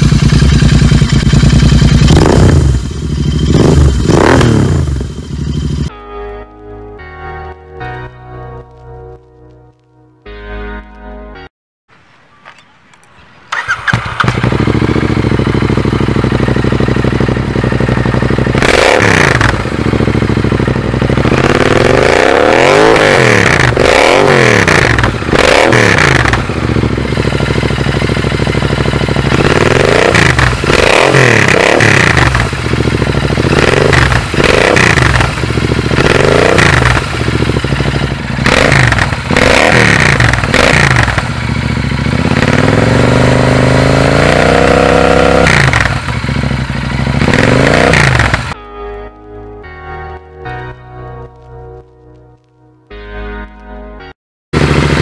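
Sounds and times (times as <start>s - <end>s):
motorcycle engine revving: 0.0s - 5.9s, 13.5s - 48.6s, 54.6s - 55.0s.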